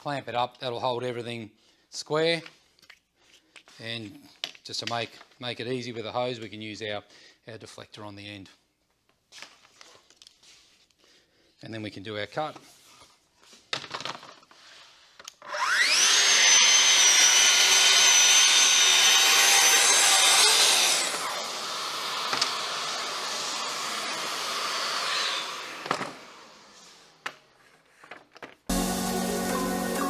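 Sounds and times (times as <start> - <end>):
track saw whining: 15.4 - 26.9.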